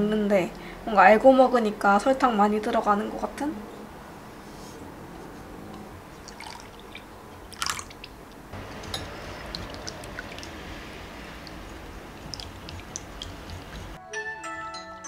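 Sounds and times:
liquid pouring into glass bowl: 0:06.2 - 0:14.0
whisk beating in glass bowl: 0:08.6 - 0:14.0.

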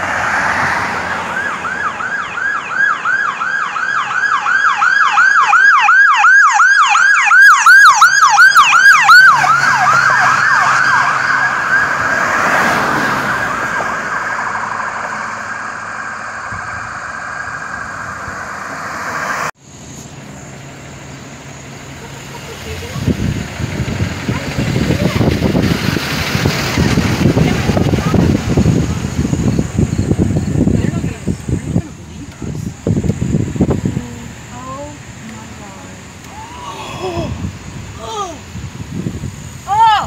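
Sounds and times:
ambulance siren yelping: 0:00.9 - 0:18.7.

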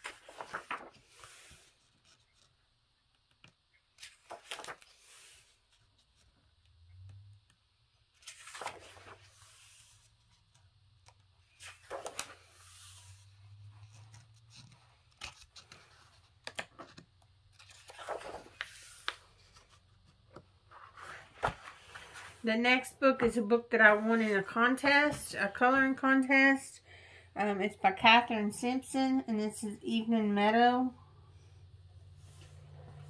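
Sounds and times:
book pages turning: 0:00.0 - 0:02.6, 0:03.2 - 0:06.6, 0:08.1 - 0:22.4.

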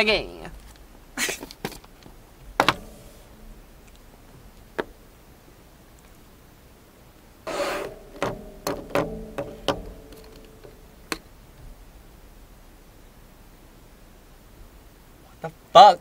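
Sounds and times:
plastic clicks and knocks: 0:02.6 - 0:03.1, 0:07.8 - 0:11.3
plastic scrape: 0:07.5 - 0:08.4.

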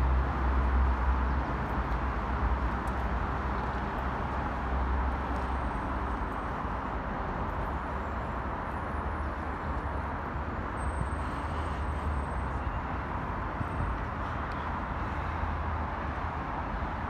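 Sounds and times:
distant road traffic hum: 0:00.0 - 0:17.0.

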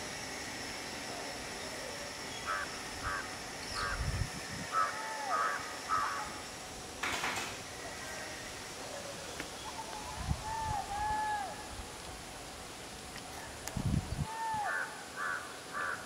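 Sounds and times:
bird calling: 0:02.3 - 0:04.0, 0:04.7 - 0:06.4, 0:07.8 - 0:11.7, 0:14.3 - 0:16.0.

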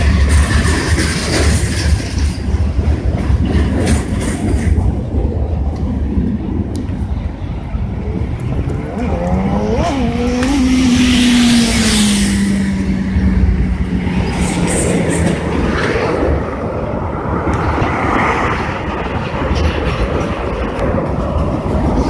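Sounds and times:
freight train rolling past: 0:00.0 - 0:10.1, 0:10.8 - 0:22.0
road vehicle engine passing: 0:07.0 - 0:22.0.

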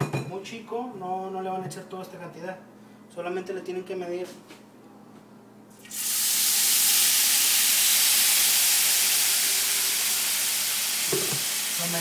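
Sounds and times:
hiss of steam and sizzling: 0:05.9 - 0:12.0.

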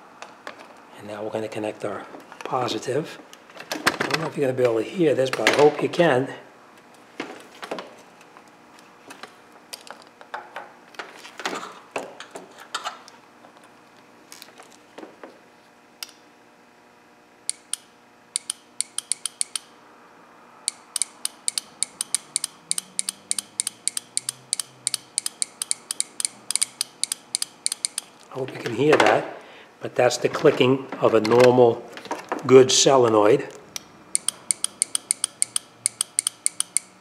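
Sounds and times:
solenoid clicking: 0:17.5 - 0:19.7, 0:20.7 - 0:28.1, 0:33.7 - 0:37.0.

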